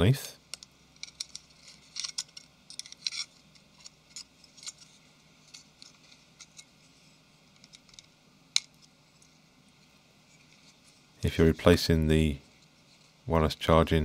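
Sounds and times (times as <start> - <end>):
screwdriver clicking and scraping metal: 0.5 - 4.9.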